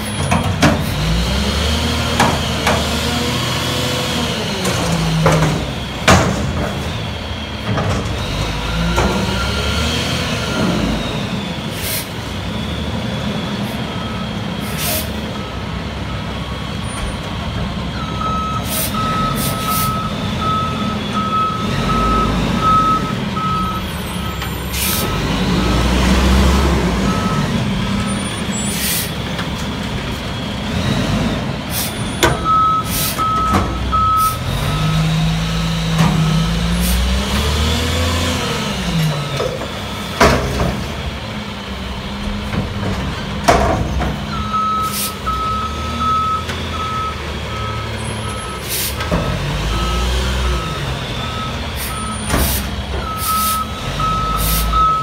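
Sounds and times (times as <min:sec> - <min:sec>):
diesel engine revving: 0:00.0 - 0:55.0
air brake hisses: 0:14.6 - 0:15.2, 0:18.6 - 0:19.9, 0:24.7 - 0:25.1, 0:28.6 - 0:29.2, 0:44.8 - 0:45.3, 0:48.6 - 0:49.0, 0:54.4 - 0:54.8
backup alarm beeping: 0:18.0 - 0:24.5, 0:32.4 - 0:35.0, 0:53.0 - 0:55.0.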